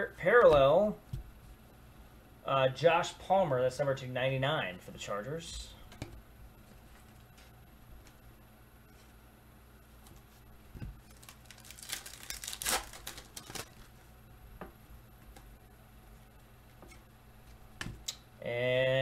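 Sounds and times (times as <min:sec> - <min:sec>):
foil wrapper crinkling and tearing: 0:11.0 - 0:14.0.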